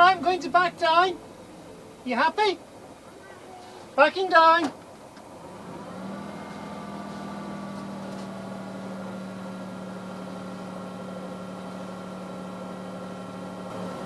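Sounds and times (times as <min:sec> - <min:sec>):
diesel boat engine running: 0:00.0 - 0:14.0.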